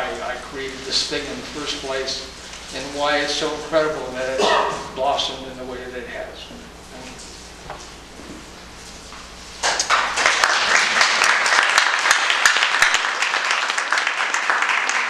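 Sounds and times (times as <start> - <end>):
audience applause: 9.6 - 15.0
hands clapping close by: 9.6 - 15.0.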